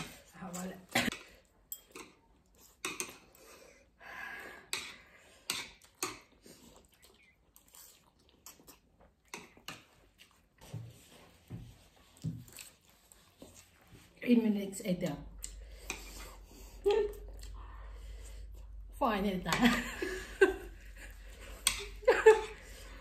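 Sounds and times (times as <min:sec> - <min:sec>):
noodles slurped and chewed: 0:04.6 - 0:14.2, 0:15.3 - 0:19.0.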